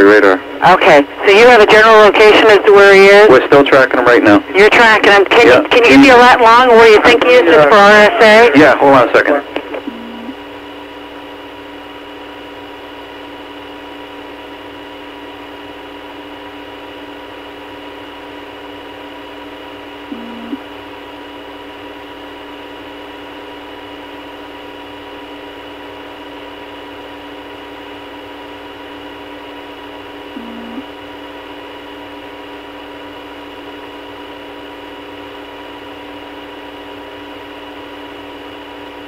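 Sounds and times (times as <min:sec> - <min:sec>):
telephone line hiss and hum: 0:00.0 - 0:39.0.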